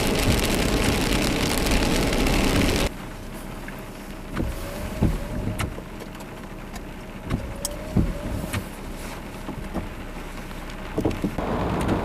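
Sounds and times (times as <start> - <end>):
raindrops thumping on roof: 0.0 - 2.9, 3.6 - 12.0
heavy rain on a car: 0.0 - 12.0.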